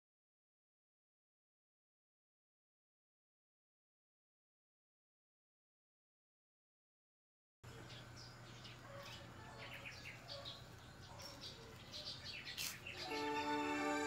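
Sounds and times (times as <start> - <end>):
faint outdoor background: 7.6 - 14.0
small birds chirping: 7.6 - 14.0
background music: 13.0 - 14.0.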